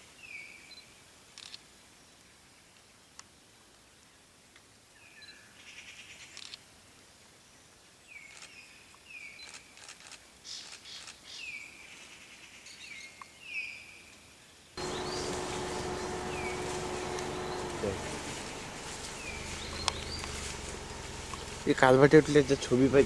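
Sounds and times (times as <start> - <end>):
birds chirping: 14.8 - 23.0.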